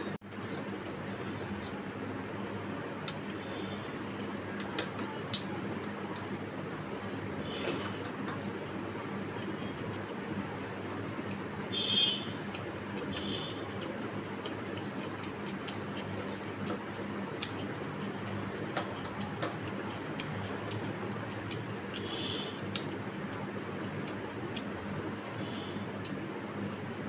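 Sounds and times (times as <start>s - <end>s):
steady low hum: 0.0s - 27.0s
chewing clicks and smacks: 3.0s - 3.4s, 11.2s - 11.5s, 12.4s - 22.1s, 22.7s - 24.8s, 25.5s - 26.9s.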